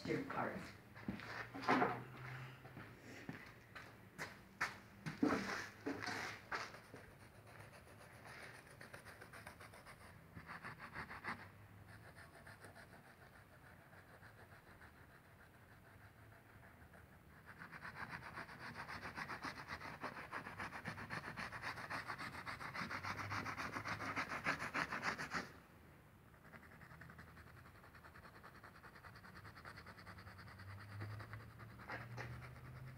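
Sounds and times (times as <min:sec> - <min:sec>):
toothbrush scrubbing glass: 0:26.6 - 0:32.9.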